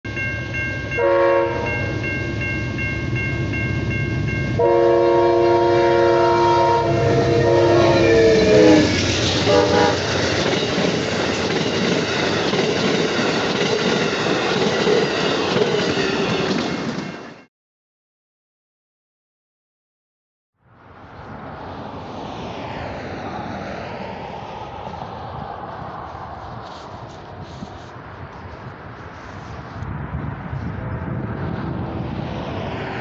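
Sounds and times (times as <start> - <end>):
crossing bell ringing: 0.1 - 17.5
train passing rumble: 0.1 - 17.5, 20.7 - 33.0
train horn blasts: 0.9 - 2.0, 4.5 - 10.2
wheels clacking on rail joints: 8.9 - 17.3.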